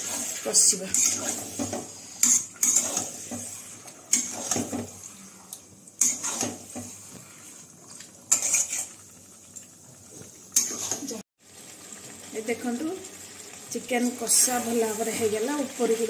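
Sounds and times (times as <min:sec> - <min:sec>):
metal spatula scraping metal pan: 0:00.0 - 0:05.1, 0:06.0 - 0:07.5, 0:08.3 - 0:09.0.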